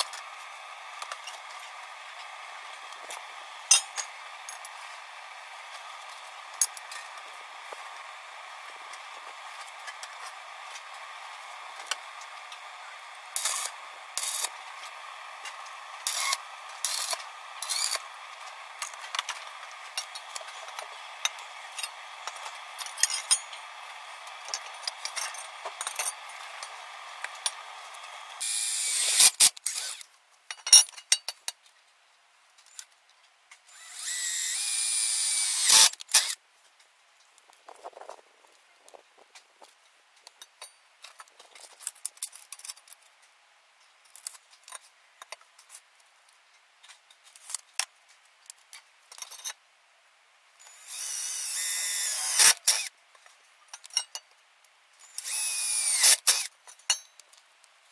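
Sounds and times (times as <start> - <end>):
cordless drill running: 12.5 - 18.8, 26.4 - 30.0, 33.7 - 36.4, 50.7 - 52.9, 55.1 - 56.5.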